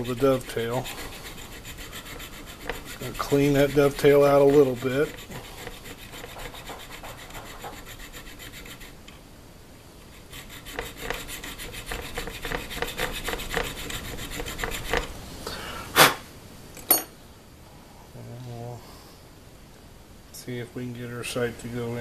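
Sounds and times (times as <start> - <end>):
file rasping on steel: 0.0 - 9.0, 10.1 - 15.1.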